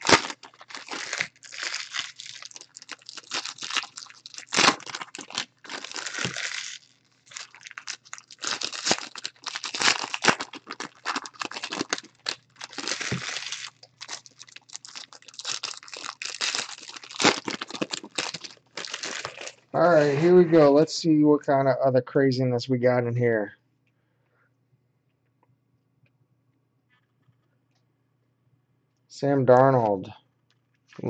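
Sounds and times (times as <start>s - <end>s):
foil wrappers crinkling and tearing: 0.0s - 20.4s.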